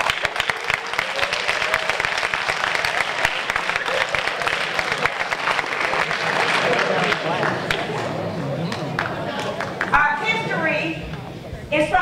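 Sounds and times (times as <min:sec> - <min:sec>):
audience applauding: 0:00.0 - 0:10.0
voices: 0:06.0 - 0:12.0.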